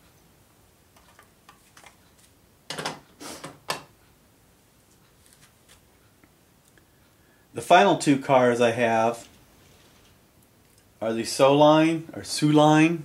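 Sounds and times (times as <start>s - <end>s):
rustling handling noises: 1.0s - 2.4s, 4.8s - 6.0s.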